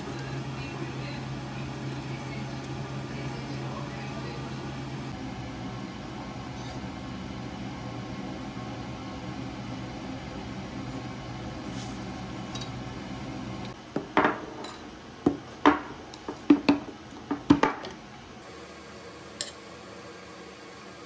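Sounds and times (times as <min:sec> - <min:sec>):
steady hum: 0:00.0 - 0:21.0
dishes and utensil clinking: 0:14.2 - 0:14.9.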